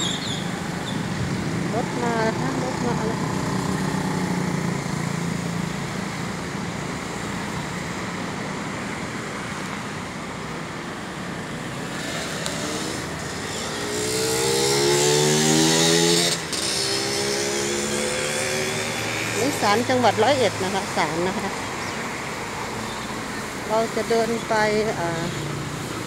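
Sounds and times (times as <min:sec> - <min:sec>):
road traffic: 0:00.0 - 0:26.0
vehicle engine accelerating: 0:11.8 - 0:21.4.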